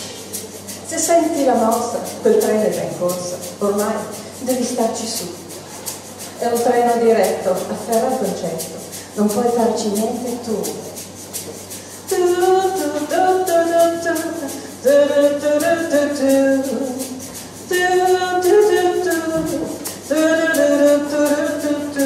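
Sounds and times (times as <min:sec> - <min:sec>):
ticking shaker beat: 0:00.0 - 0:22.0
woman singing wordless melody: 0:06.4 - 0:10.9, 0:12.0 - 0:22.0.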